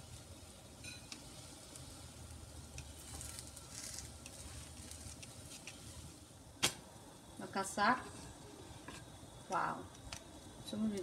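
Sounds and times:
pancake sizzling in oil: 0.0 - 11.0
wooden spatula scraping and tapping: 2.7 - 5.9.

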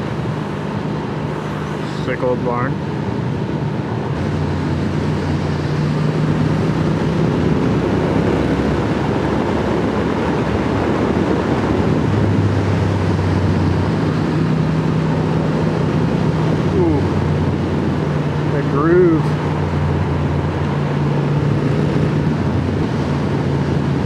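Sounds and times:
motorcycle engine cruising: 0.0 - 24.0
wind rushing over microphone: 0.0 - 24.0.

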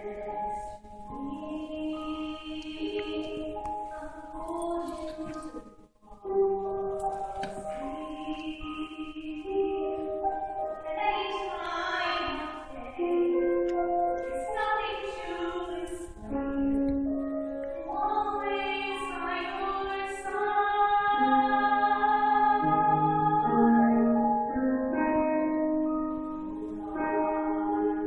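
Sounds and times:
woman singing: 0.0 - 5.8, 7.4 - 17.2, 17.8 - 24.6
piano accompaniment: 0.0 - 28.0.

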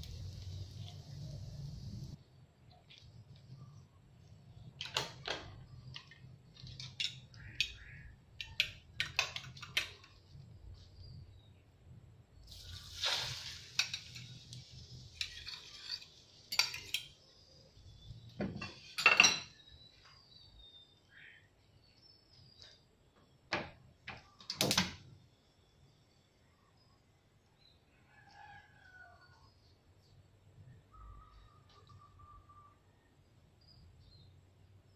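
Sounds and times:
egg sizzling in hot oil: 0.0 - 2.2, 12.5 - 17.3
utensils clinking against pan: 15.1 - 17.2.

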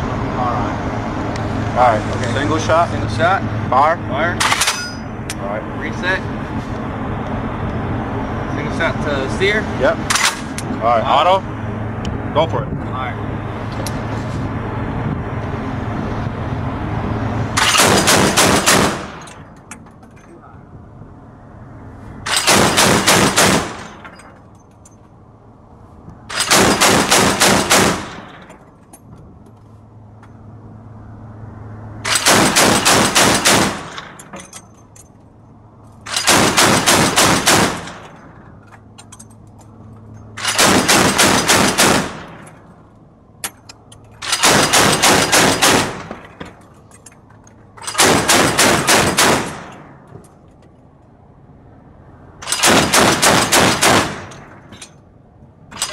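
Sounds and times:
chain gun firing bursts: 17.6 - 19.3, 22.3 - 24.0, 26.3 - 28.4, 32.1 - 34.3, 36.1 - 38.2, 40.4 - 42.4, 44.2 - 46.1, 47.8 - 49.9, 52.4 - 54.4.

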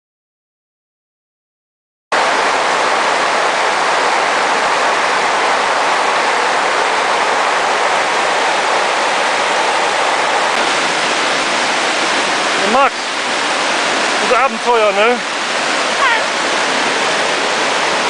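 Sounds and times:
water rushing over rocks: 2.1 - 18.0.

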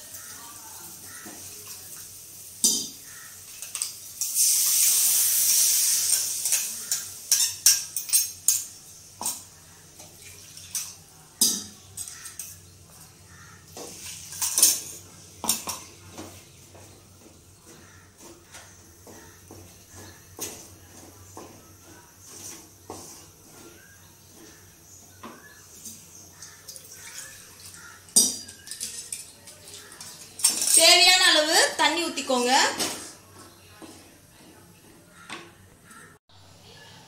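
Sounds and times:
water hissing in hot pan: 0.0 - 7.9
wooden spatula scraping pan: 16.0 - 26.1.

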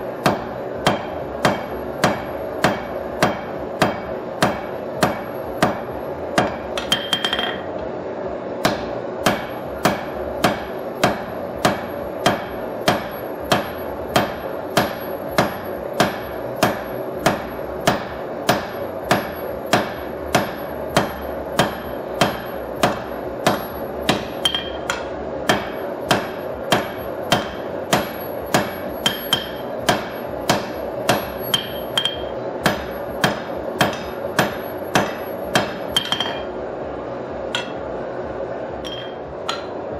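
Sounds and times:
steady background noise: 0.0 - 39.9
hammer ringing on anvil: 6.4 - 7.7, 8.6 - 36.5, 37.6 - 37.8, 38.8 - 39.8.

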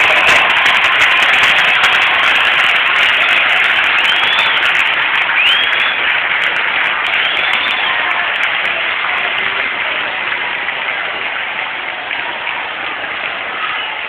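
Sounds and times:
crowd applauding: 0.0 - 14.0
whistles: 3.2 - 6.2, 7.1 - 8.1.

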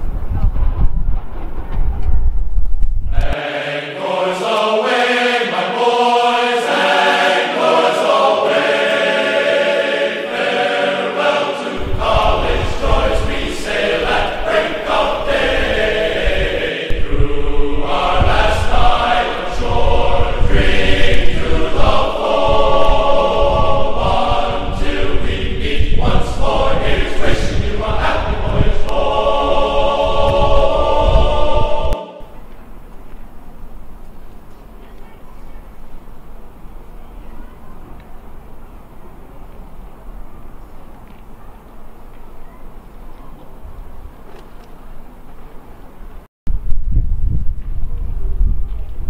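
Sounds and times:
choir singing chant-like chords: 3.1 - 32.6
low rumble: 11.8 - 32.9.

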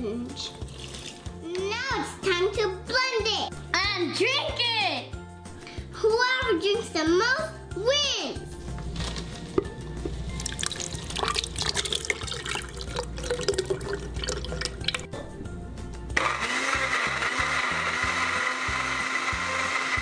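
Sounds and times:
thick liquid pouring into glass: 0.6 - 1.4, 10.3 - 15.1
electric blender running: 16.2 - 20.0.

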